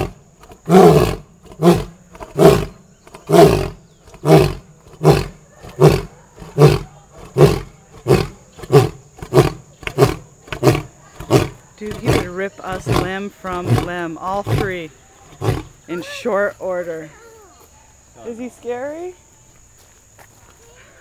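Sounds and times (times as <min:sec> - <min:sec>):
lion roaring: 0:00.0 - 0:15.8.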